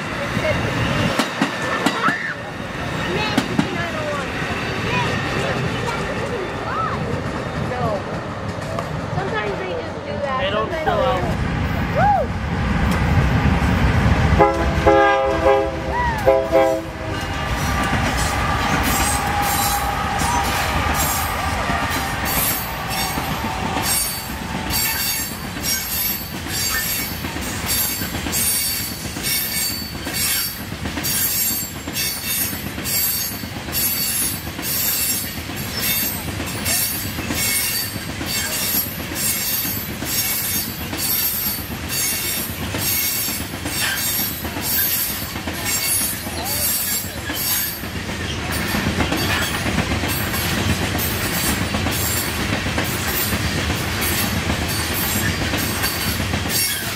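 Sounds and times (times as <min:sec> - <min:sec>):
rhythmic train wheel beats: 0:00.0 - 0:56.9
train rumble: 0:00.0 - 0:56.9
train wheel squeal: 0:17.1 - 0:56.9.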